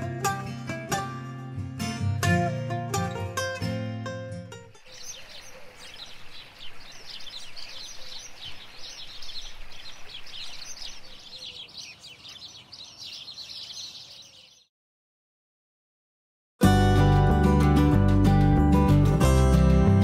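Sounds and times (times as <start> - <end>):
stream running around rocks: 4.8 - 11.3
small birds chirping: 4.8 - 14.7.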